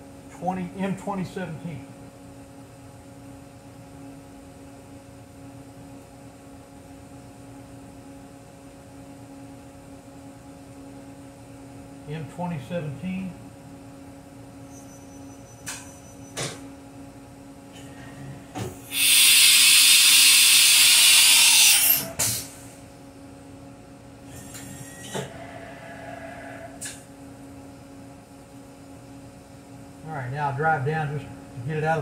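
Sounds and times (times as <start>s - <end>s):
electrical hum: 0.0s - 32.0s
compressed air hiss: 18.8s - 22.7s.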